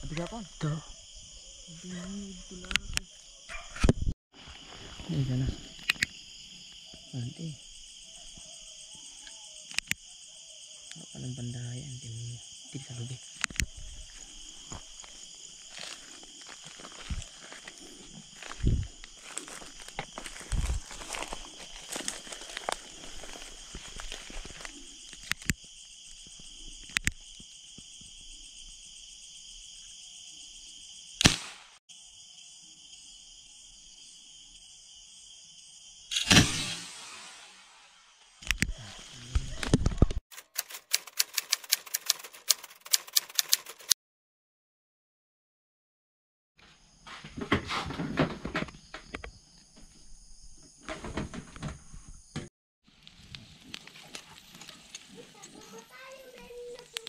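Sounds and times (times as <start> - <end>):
crickets trilling: 0.0 - 43.9, 46.7 - 57.0
sharp clicks: 9.7 - 10.0, 25.2 - 25.6, 31.2 - 31.6, 39.7 - 44.0
sharp gunshot: 31.2 - 31.8, 36.1 - 37.9.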